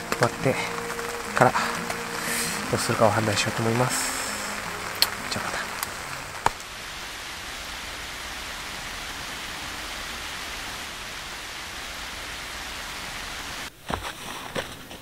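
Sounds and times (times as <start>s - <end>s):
steady rain falling: 0.0s - 14.7s.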